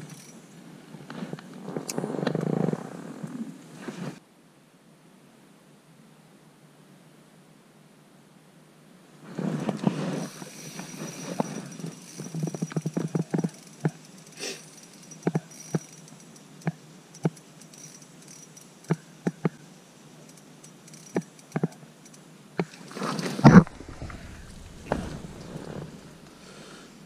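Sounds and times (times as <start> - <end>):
fish flopping on ice: 22.8 - 26.3.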